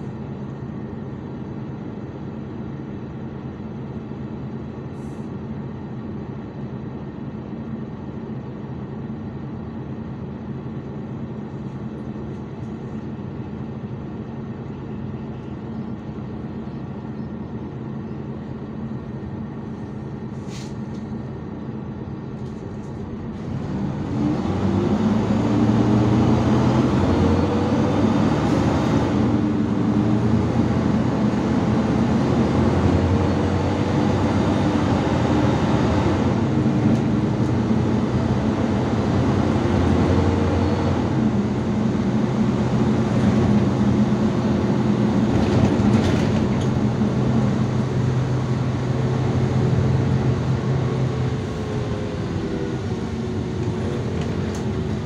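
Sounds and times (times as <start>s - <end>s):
bus engine accelerating: 0.0s - 55.0s
bus engine idling: 0.0s - 55.0s.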